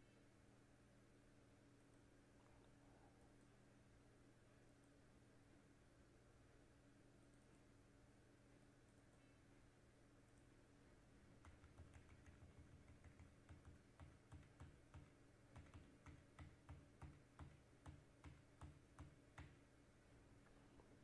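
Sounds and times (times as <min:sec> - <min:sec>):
keyboard keystrokes: 0:11.3 - 0:19.6.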